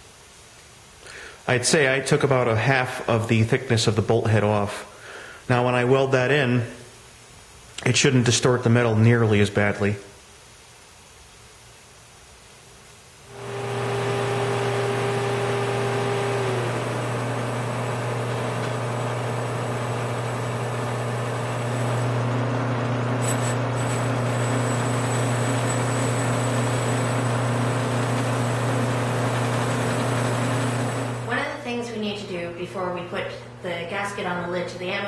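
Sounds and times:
drill press motor hum: 13.3 - 31.3
wire brush scrubbing metal: 23.1 - 28.6.

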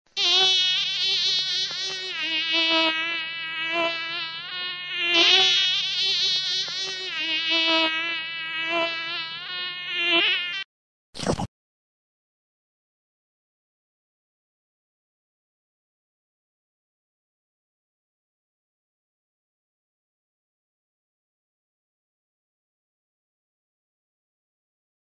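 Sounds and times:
mosquito buzzing: 0.1 - 10.7.

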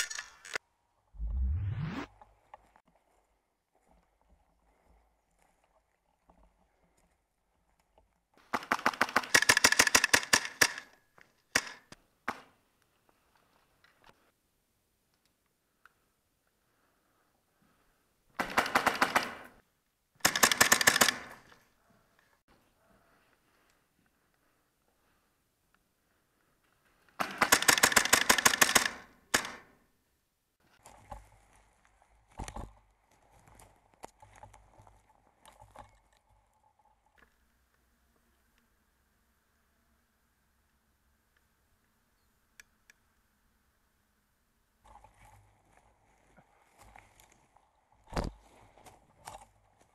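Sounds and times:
airsoft gun firing: 20.2 - 21.4, 27.2 - 29.7.

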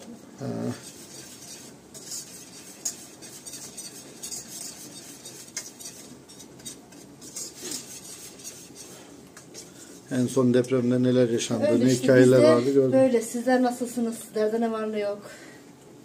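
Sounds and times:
spoon scraping a steel pot: 0.7 - 10.3.

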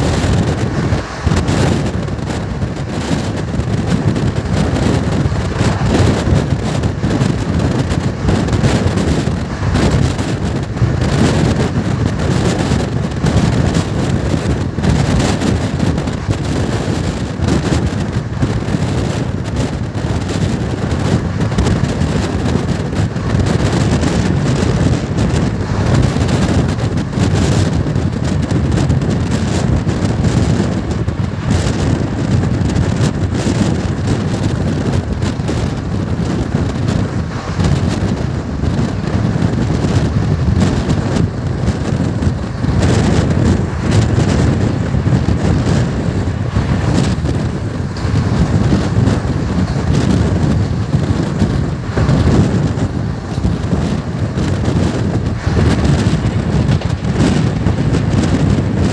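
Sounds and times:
train rumbling on rails: 0.0 - 58.9
wind buffeting microphone: 0.0 - 58.9.

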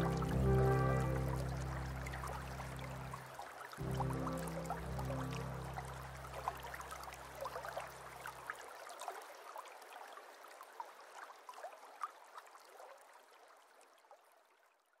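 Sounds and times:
low music note: 0.0 - 7.8
small waterfall trickling and dripping: 0.0 - 15.0.

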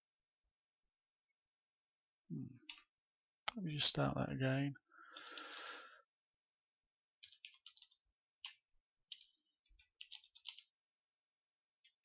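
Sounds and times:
typing on computer keyboard: 7.2 - 10.8.

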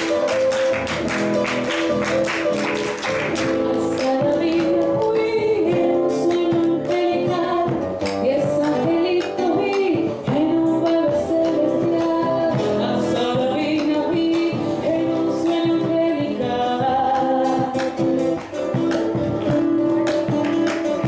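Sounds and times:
classical guitars strummed: 0.0 - 21.0
woman singing: 3.3 - 18.5.

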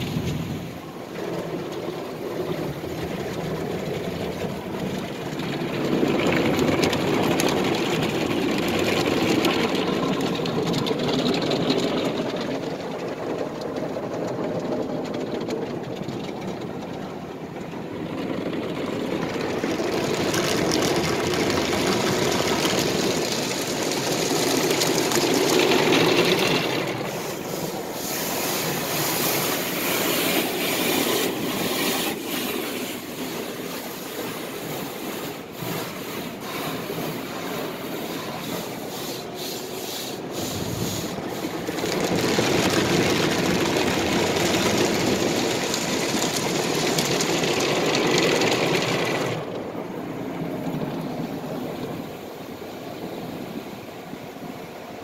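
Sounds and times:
car wash brushes scrubbing: 0.0 - 14.8, 18.1 - 49.6
water jets spraying on glass: 20.4 - 49.3.

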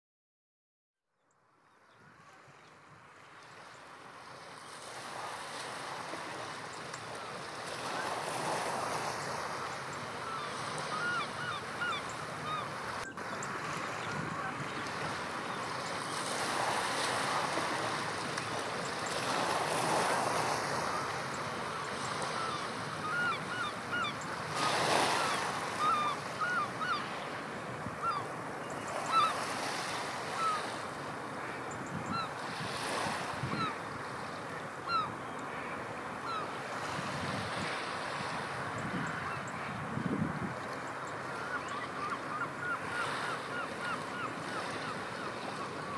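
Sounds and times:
surf washing on rocky shore: 3.8 - 45.9
upward-swooping bird calls: 8.8 - 15.6, 20.8 - 27.2, 28.0 - 29.6, 30.2 - 30.8, 33.5 - 33.8, 34.8 - 35.6
strong wind: 13.0 - 15.6, 36.9 - 40.7.

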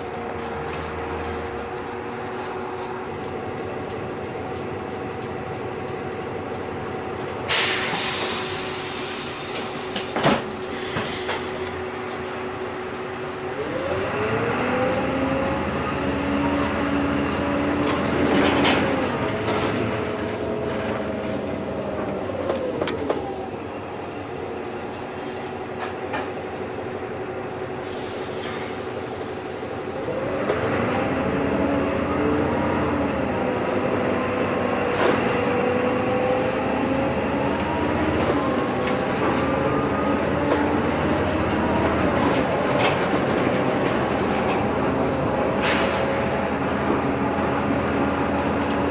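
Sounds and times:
bus drivetrain whine: 0.0 - 48.9
bus body rattles: 10.0 - 11.6, 40.3 - 48.9.

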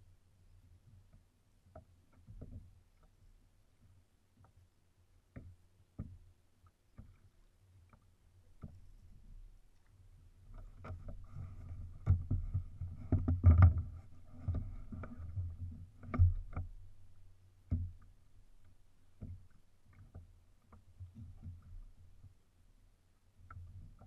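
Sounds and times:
thumps on plastic kayak: 10.8 - 16.9.

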